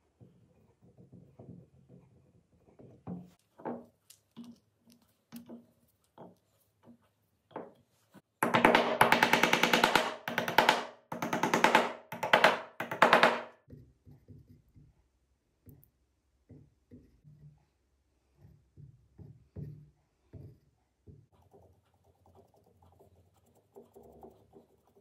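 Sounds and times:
rapid hammer strikes on board: 8.4 - 13.6.

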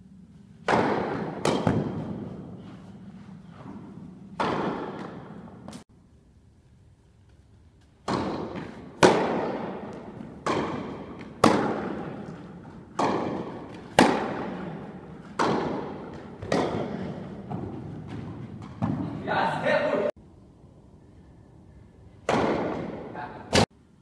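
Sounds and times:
ball bouncing on indoor court: 0.4 - 5.8, 7.8 - 19.3, 22.2 - 23.7
tennis ball struck by rackets: 0.6 - 2.5, 4.4 - 5.8, 8.0 - 18.2, 22.2 - 23.7.

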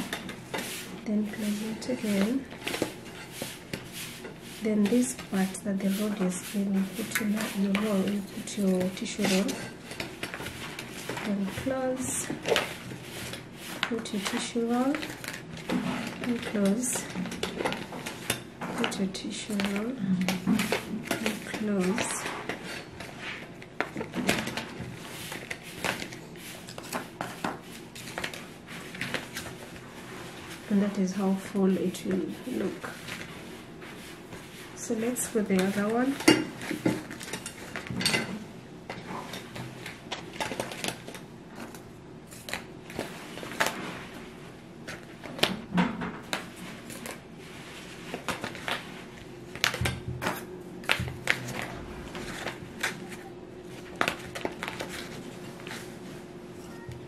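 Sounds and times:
fabric and cardboard rustling: 0.0 - 37.9, 46.2 - 56.9.

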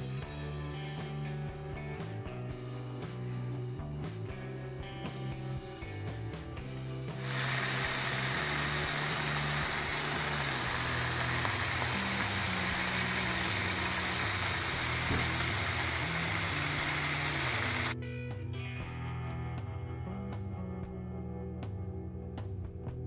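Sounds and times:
background music: 0.0 - 23.0
bacon sizzling in a frying pan: 7.2 - 18.0.

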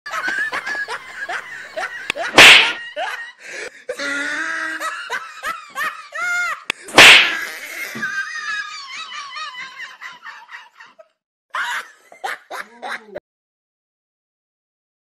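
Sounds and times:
person laughing: 0.1 - 13.2
sharp smack: 2.3 - 2.8, 6.9 - 7.5.

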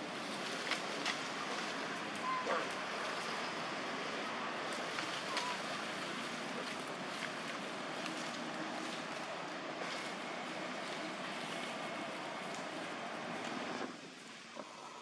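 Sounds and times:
forest background hiss: 0.0 - 15.0.

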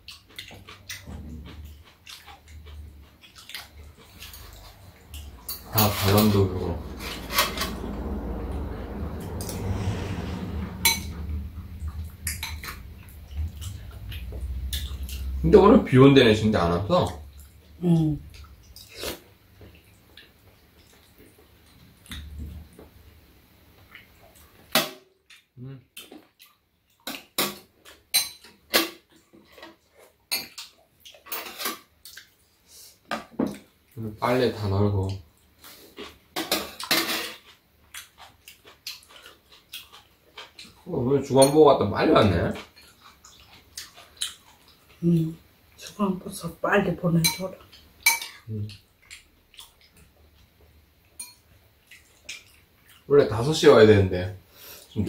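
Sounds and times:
steady low hum: 1.1 - 19.0
utensils clinking on ceramic bowls: 4.0 - 7.9, 47.2 - 48.4, 51.2 - 51.5
spoons clinking against bowls: 47.2 - 48.4, 51.2 - 51.5.

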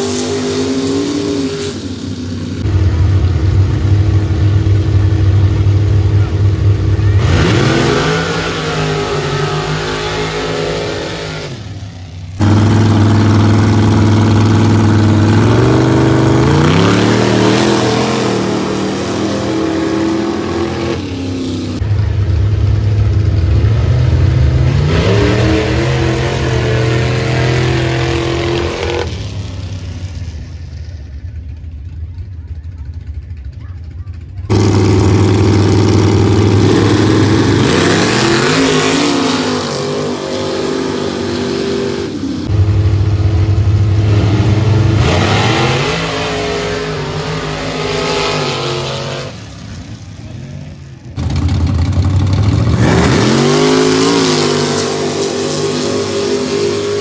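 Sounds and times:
pickup truck engines accelerating: 0.0 - 57.0.

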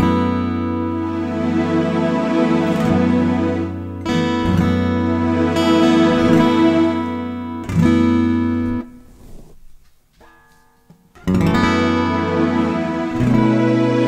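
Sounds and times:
acoustic guitar strumming: 0.0 - 9.1, 10.1 - 14.0
guitar notes picked: 10.2 - 14.0.

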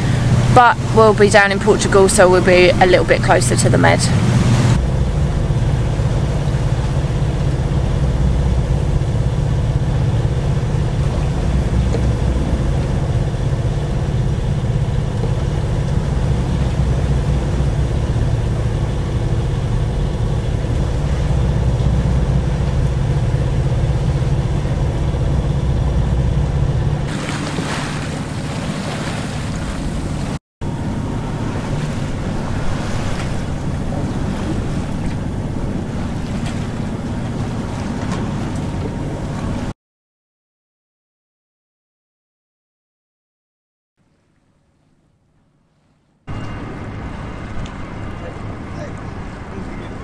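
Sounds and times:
wind and water rushing: 0.0 - 39.7
boat engine droning: 0.0 - 39.8, 45.7 - 50.0.

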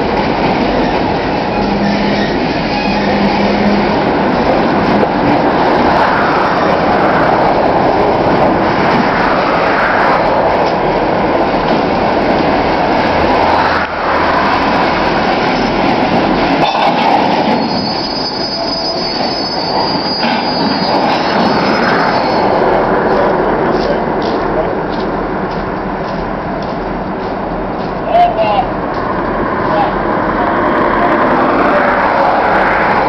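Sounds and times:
freight cars rumbling on rails: 0.0 - 33.0
high wheel squeal: 0.8 - 4.0, 16.6 - 22.8.

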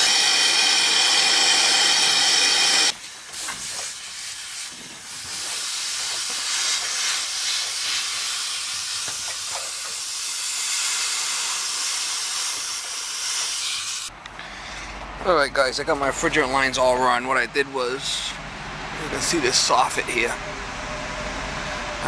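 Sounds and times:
steady hiss at pipe joint: 3.0 - 14.1.

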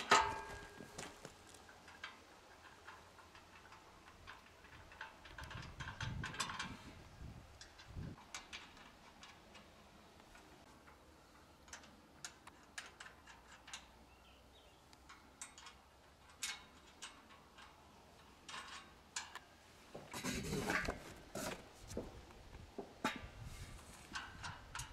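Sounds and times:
tools clicking on metal: 7.5 - 14.0, 14.9 - 19.5.

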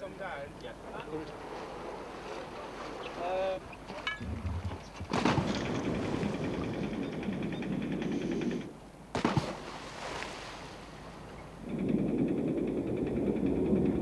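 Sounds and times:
churning bubbling water: 4.1 - 7.4
splash of diver jumping in: 9.1 - 10.8.

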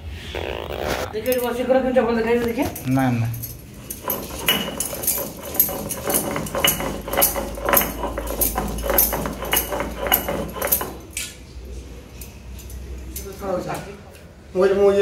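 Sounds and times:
stone roller scraping on stone: 3.6 - 11.1.

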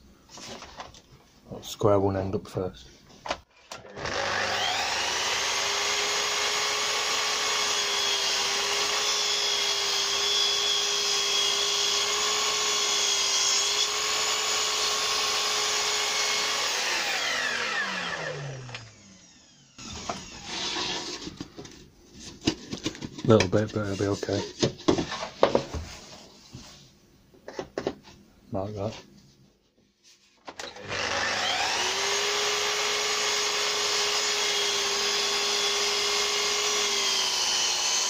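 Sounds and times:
saw motor winding down: 3.8 - 20.8, 30.6 - 38.0
mitre saw running: 3.8 - 21.0, 30.6 - 38.0.

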